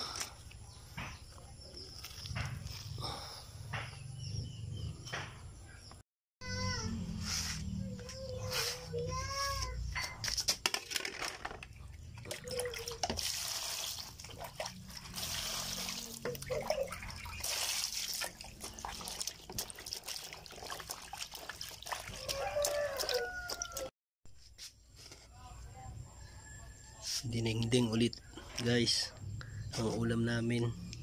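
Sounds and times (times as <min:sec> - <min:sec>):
water sloshing in a basin: 0:12.0 - 0:23.9
water splashing and dripping: 0:12.2 - 0:23.9.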